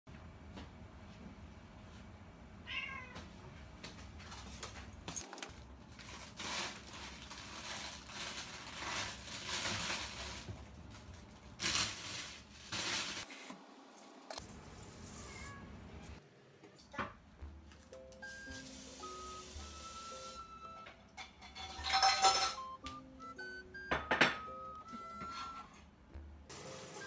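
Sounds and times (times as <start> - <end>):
cat meow: 2.6 - 3.3
plastic bags rustling: 5.1 - 13.5.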